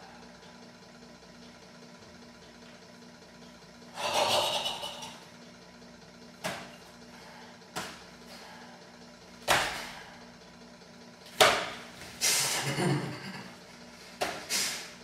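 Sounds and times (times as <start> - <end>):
faint steady hum: 0.0 - 15.0
forceful martial arts strikes: 9.4 - 10.0.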